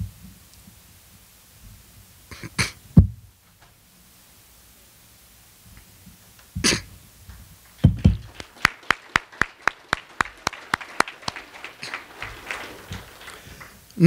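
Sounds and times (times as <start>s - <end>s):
cough-like burst: 6.6s - 6.9s, 10.6s - 13.7s
hands clapping: 7.6s - 14.0s.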